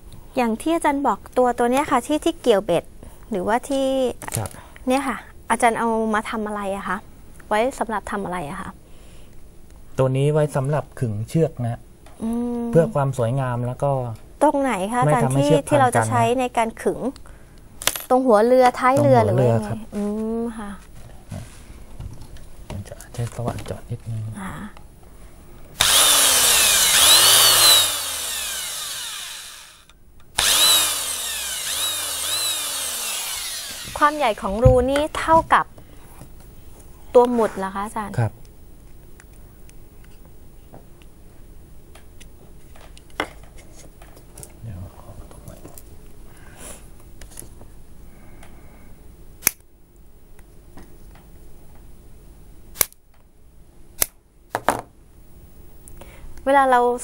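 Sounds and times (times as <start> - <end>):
small electric drill whirring: 25.8 - 34.6.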